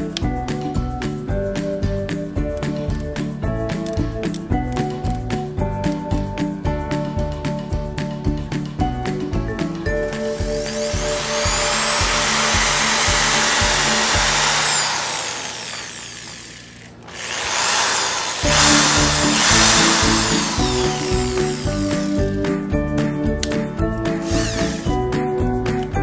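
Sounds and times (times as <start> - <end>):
background music with steady beat: 0.0 - 15.3, 18.4 - 26.0
impact drill motor whine: 10.1 - 22.4, 24.2 - 25.0.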